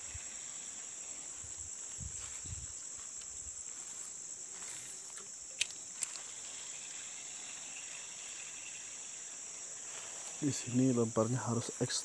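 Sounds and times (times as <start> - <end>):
high-pitched insect drone: 0.0 - 12.0
sharp clicks: 5.2 - 6.3.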